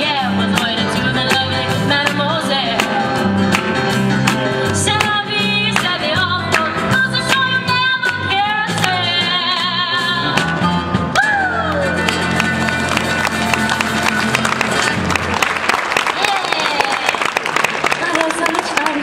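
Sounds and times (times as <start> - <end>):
woman singing with vibrato: 0.0 - 3.5, 4.6 - 10.5
strummed acoustic guitars: 0.0 - 11.2, 11.8 - 15.4.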